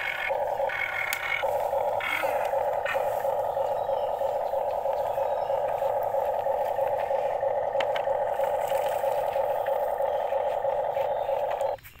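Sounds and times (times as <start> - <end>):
toy excavator motors whirring: 0.0 - 12.0.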